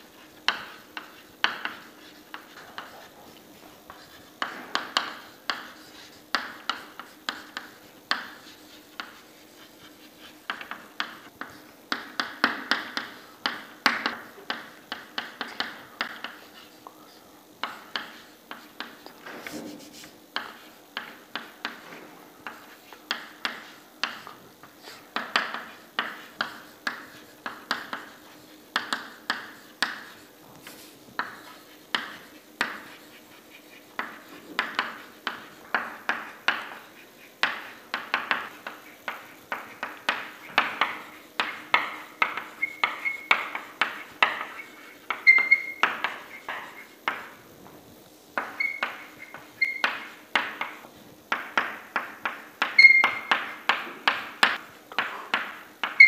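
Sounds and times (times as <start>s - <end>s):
chalk tapping on chalkboard: 0.0s - 17.0s, 17.6s - 47.4s, 48.3s - 56.0s.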